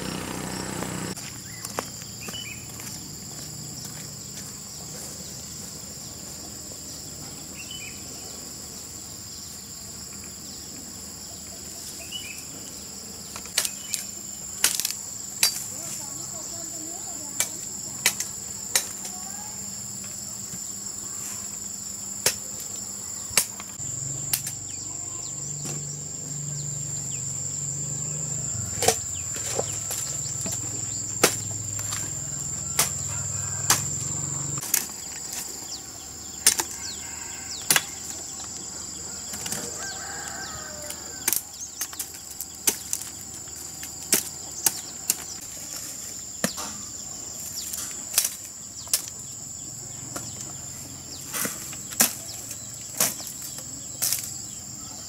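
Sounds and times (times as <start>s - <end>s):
high insect drone: 0.0s - 55.0s
machete chopping dry branches: 13.5s - 15.7s, 28.8s - 34.0s, 36.4s - 36.8s, 43.8s - 46.8s, 51.3s - 54.4s.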